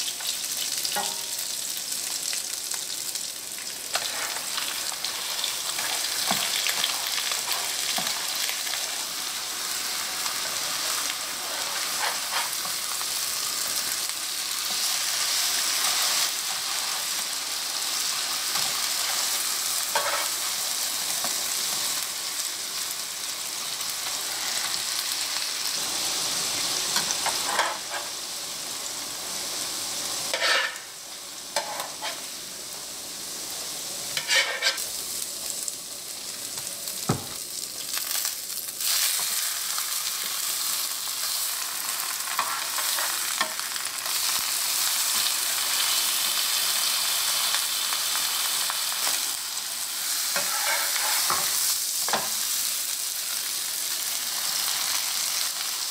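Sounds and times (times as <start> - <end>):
fish sizzling in oil: 0.0 - 55.9
spatula scraping a pan: 3.9 - 4.6, 11.3 - 12.8, 19.9 - 20.4, 30.3 - 30.8, 31.6 - 32.3, 34.2 - 34.8, 50.2 - 51.5.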